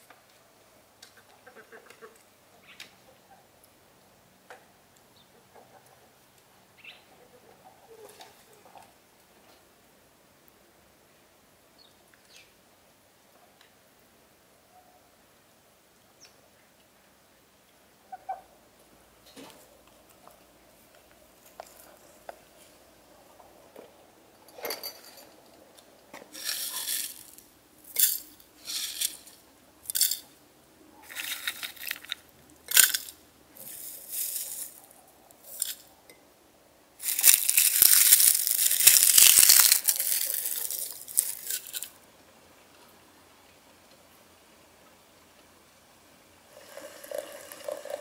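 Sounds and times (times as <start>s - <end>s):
dried herbs rustling: 26.2s - 30.3s, 31.0s - 35.9s, 37.0s - 42.0s.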